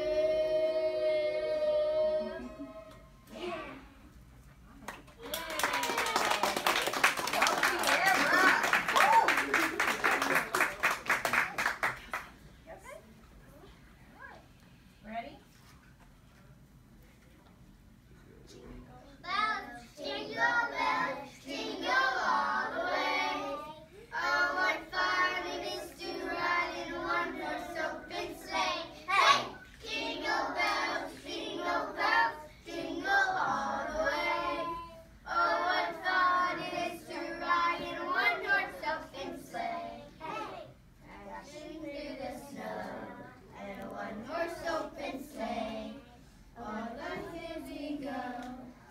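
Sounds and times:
children singing together: 0.0s - 3.0s, 19.9s - 48.9s.

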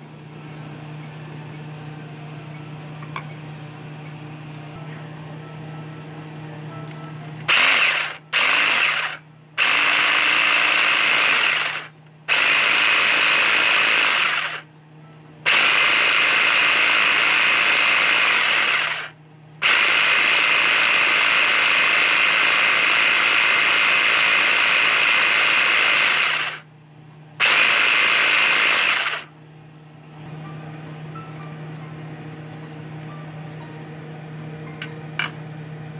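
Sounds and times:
electric food chopper running: 7.4s - 14.7s, 15.4s - 26.7s, 27.4s - 29.3s.

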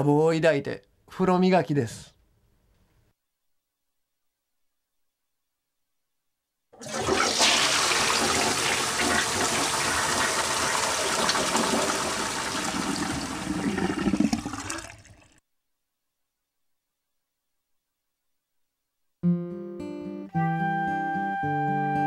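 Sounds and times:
toilet flushing: 6.8s - 15.4s.

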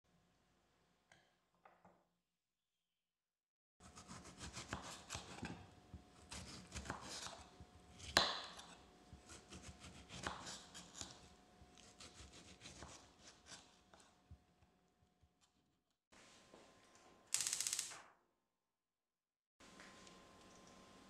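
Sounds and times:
knife slicing tomatoes: 3.8s - 5.6s, 6.2s - 14.2s.

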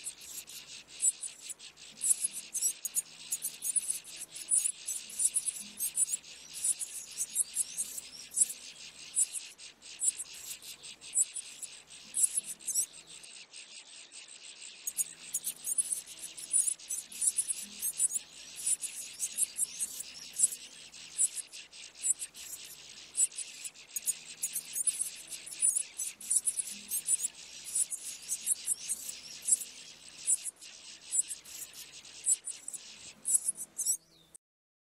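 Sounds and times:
nestlings cheeping: 10.0s - 13.0s, 22.0s - 34.0s.

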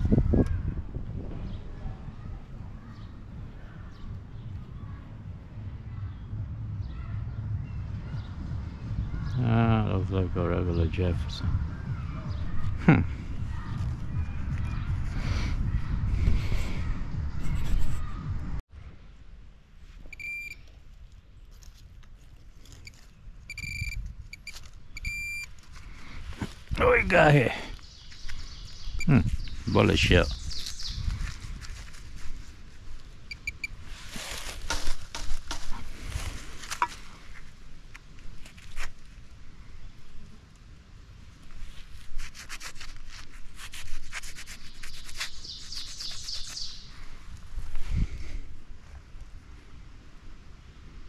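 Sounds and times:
scraping strokes in soil: 19.8s - 26.8s, 29.2s - 39.4s, 41.3s - 49.0s
metal detector beeping: 20.1s - 20.7s, 22.8s - 25.5s, 33.3s - 33.8s.

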